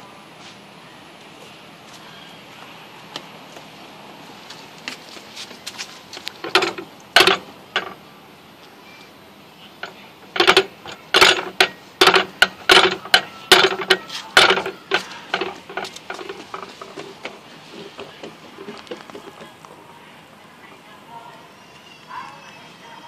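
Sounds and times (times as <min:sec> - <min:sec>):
toy steering wheel clacking: 0:06.2 - 0:08.0, 0:09.8 - 0:19.5.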